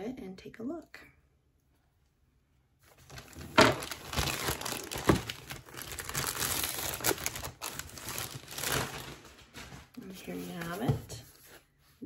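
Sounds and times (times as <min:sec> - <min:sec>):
package wrapping crinkling and tearing: 0:02.9 - 0:10.1.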